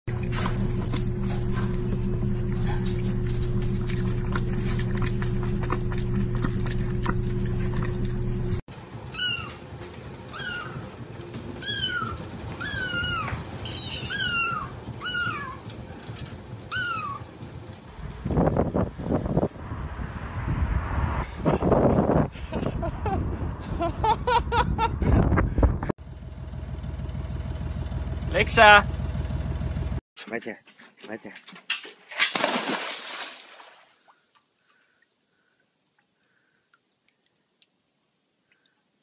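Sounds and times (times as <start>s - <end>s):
steady hum with clicks: 0.1s - 8.6s
cat meowing: 10.3s - 10.8s, 11.6s - 13.4s, 14.1s - 15.6s.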